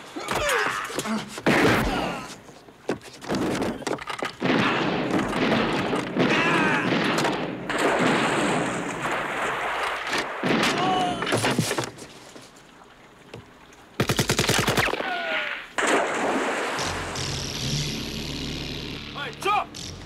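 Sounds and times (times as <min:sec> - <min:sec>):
gunshots: 0:04.4 - 0:11.8, 0:14.0 - 0:17.3.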